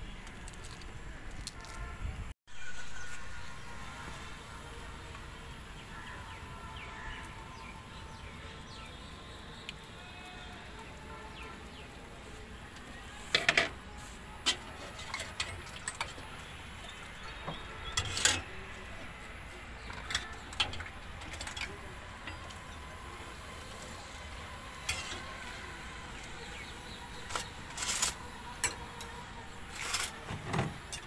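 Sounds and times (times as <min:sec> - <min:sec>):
outdoor background noise: 0:00.0 - 0:31.0.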